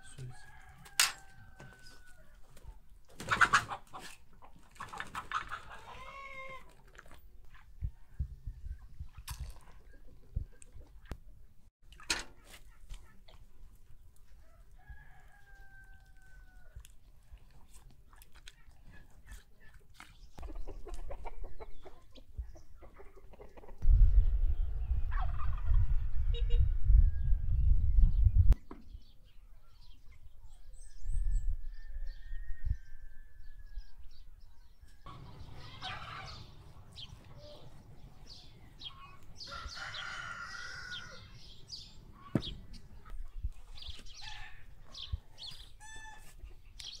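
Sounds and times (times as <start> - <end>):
poultry calling: 5.2 - 6.7, 35.1 - 42.6
loud low rumble: 23.8 - 28.5.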